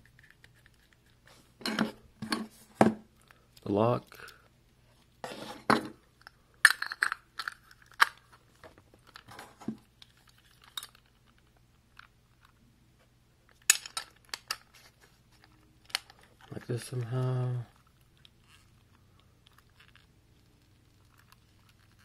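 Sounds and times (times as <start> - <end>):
metal lock parts clicking and clinking: 6.6 - 8.2, 13.6 - 14.6.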